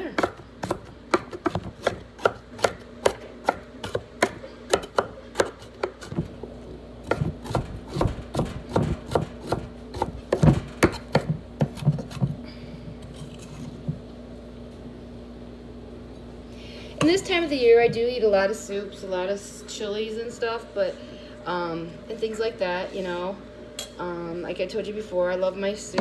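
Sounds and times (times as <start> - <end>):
knife chopping on wooden board: 0.2 - 6.3, 7.0 - 12.3.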